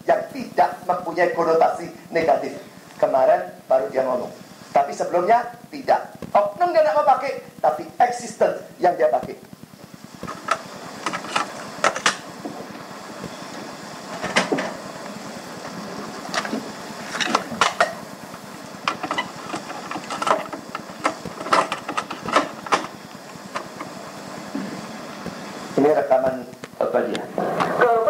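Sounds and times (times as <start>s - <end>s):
steady background hum: 0.0s - 28.0s
sharp clicks and knocks: 9.5s - 12.5s, 14.2s - 14.8s, 16.3s - 24.0s.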